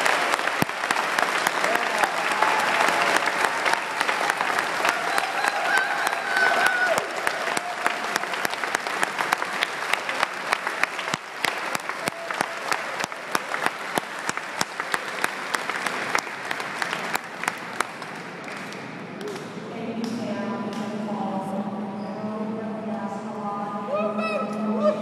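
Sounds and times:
crowd applauding: 0:00.0 - 0:19.4.

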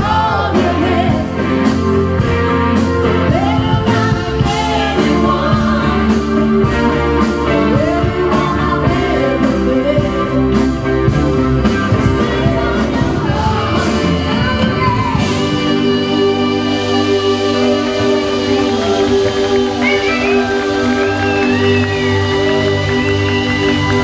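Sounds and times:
drum kit beat: 0:00.0 - 0:24.0
keyboard chords: 0:00.0 - 0:24.0
live rock band playing: 0:00.0 - 0:24.0
woman singing lead: 0:00.0 - 0:24.0.

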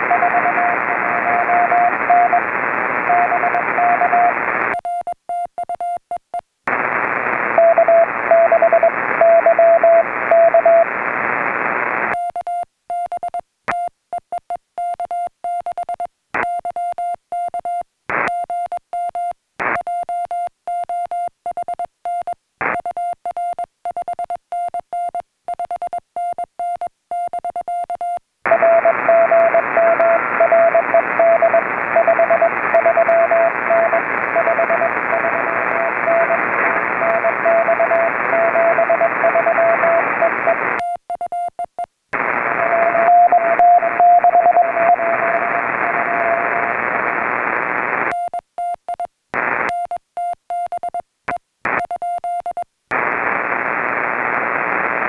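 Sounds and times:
morse code beeping: 0:00.0 - 0:02.4, 0:03.1 - 0:06.0, 0:37.0 - 0:41.8, 0:42.6 - 0:45.3
radio receiver hiss: 0:00.0 - 0:04.7, 0:06.7 - 0:12.2, 0:28.5 - 0:40.8, 0:42.2 - 0:48.1, 0:49.4 - 0:49.7, 0:52.9 - 0:55.0.

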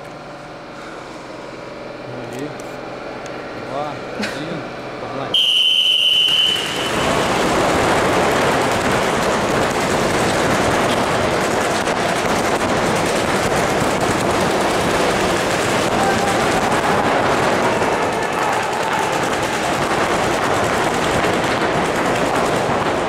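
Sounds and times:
rapid paintball gunfire: 0:05.4 - 0:23.0.

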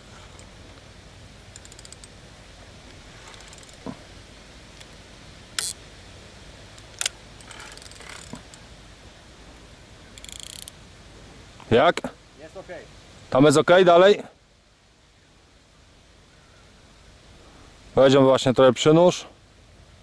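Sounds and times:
fishing reel clicking: 0:01.5 - 0:02.1, 0:03.3 - 0:03.8, 0:05.6 - 0:05.8, 0:06.9 - 0:08.6, 0:10.2 - 0:10.8.

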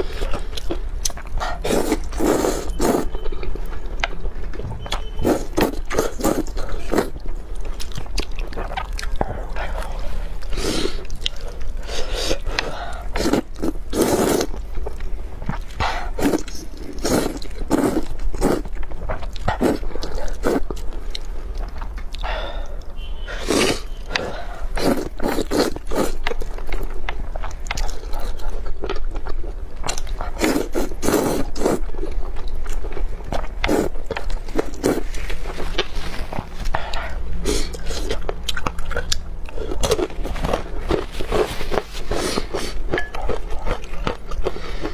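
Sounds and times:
chewing: 0:00.0 - 0:44.9
noodles slurped: 0:01.3 - 0:03.1, 0:05.2 - 0:07.2, 0:08.5 - 0:14.6, 0:15.7 - 0:18.7, 0:19.4 - 0:20.8, 0:23.4 - 0:26.5, 0:29.9 - 0:32.0, 0:33.6 - 0:38.2.

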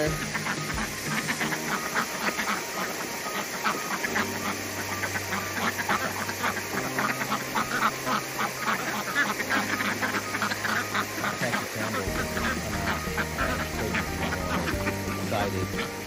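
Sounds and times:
ducks quacking: 0:00.0 - 0:16.0
ducks splashing in water: 0:00.0 - 0:16.0.

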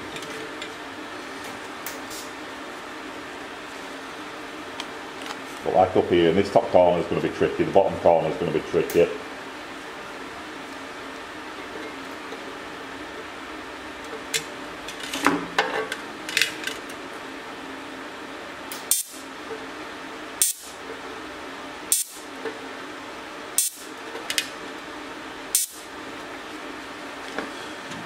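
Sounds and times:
welder hum: 0:16.9 - 0:28.0
welding arc crackling bursts: 0:18.7 - 0:19.3, 0:20.4 - 0:20.8, 0:21.9 - 0:22.3, 0:23.6 - 0:23.9, 0:25.5 - 0:25.9.

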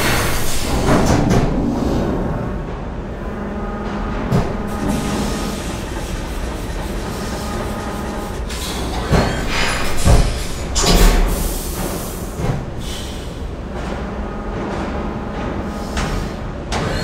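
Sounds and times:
motorised panels rumbling and whirring: 0:00.0 - 0:17.0.

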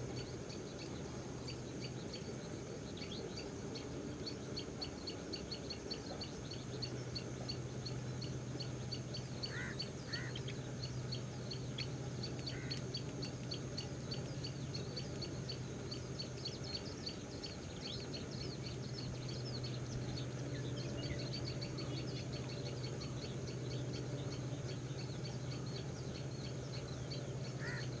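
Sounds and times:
birds chirping: 0:00.0 - 0:28.0
steady low hum: 0:00.0 - 0:28.0
louder curving bird calls: 0:06.8 - 0:28.0.

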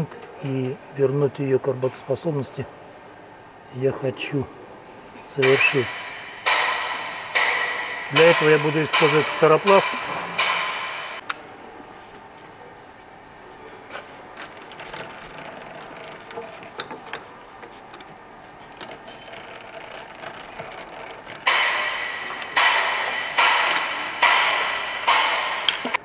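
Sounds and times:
loud metallic clanks ringing: 0:05.4 - 0:11.2, 0:18.6 - 0:26.0.

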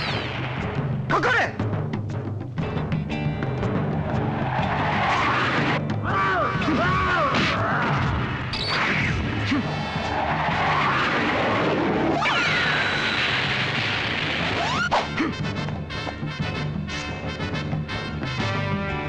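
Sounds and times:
background music: 0:00.0 - 0:19.0
crashing and rumbling effects: 0:06.6 - 0:14.9.

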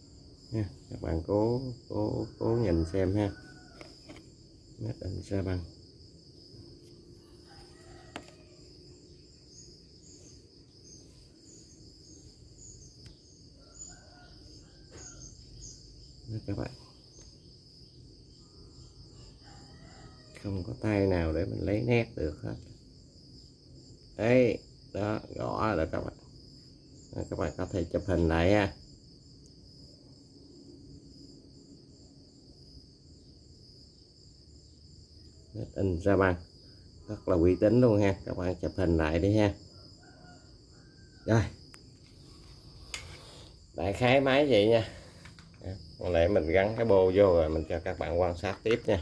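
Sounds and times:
insects chirring: 0:00.0 - 0:49.0.

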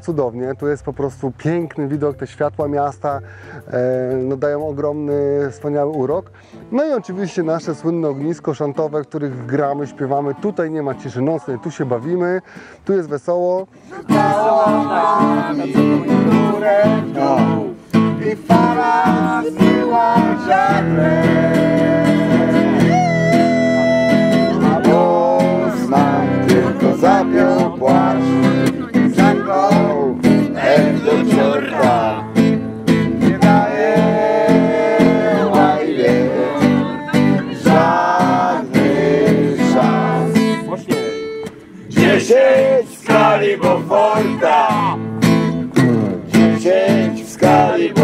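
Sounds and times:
acoustic guitar strumming: 0:13.8 - 0:48.0
person singing: 0:13.9 - 0:32.4, 0:33.2 - 0:40.6.

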